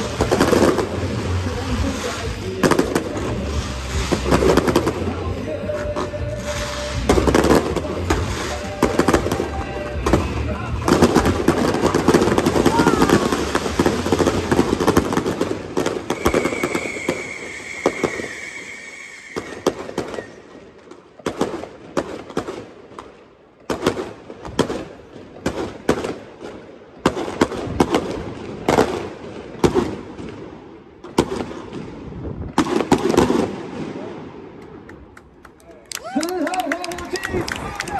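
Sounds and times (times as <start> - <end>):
fireworks bangs and crackling: 0.0 - 37.9
high steady whistle: 16.1 - 20.5.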